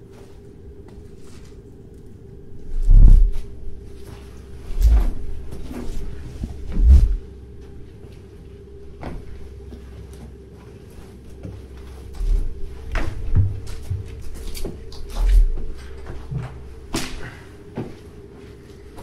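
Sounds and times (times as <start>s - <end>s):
dull thumps: 4.7s - 7.2s, 12.1s - 17.2s.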